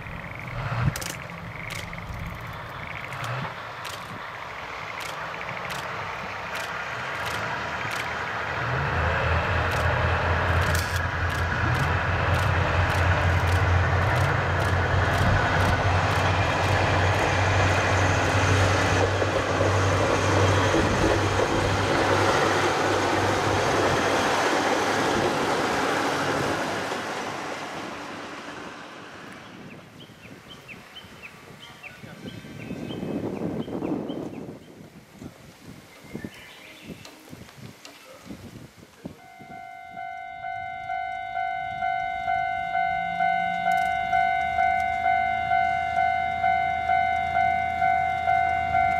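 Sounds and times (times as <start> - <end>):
diesel railcar engine drone: 0.0 - 34.0, 39.2 - 48.9
wheels rumbling on rails: 0.0 - 35.9, 36.5 - 48.9.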